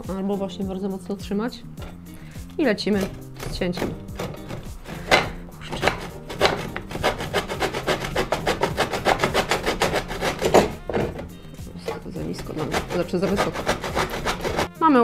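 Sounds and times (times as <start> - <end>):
hand saw cutting wood: 2.8 - 14.7.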